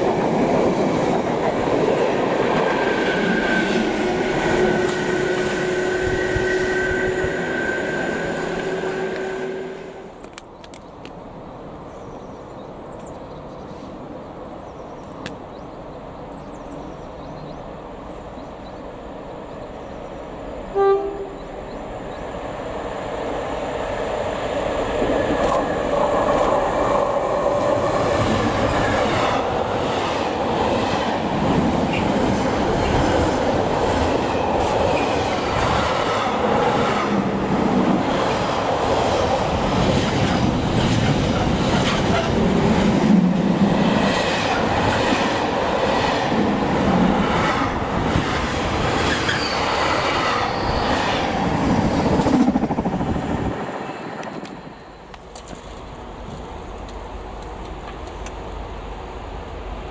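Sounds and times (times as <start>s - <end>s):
freight train passing: 0.0s - 59.9s
train horn toot: 3.9s - 10.1s, 20.7s - 21.6s.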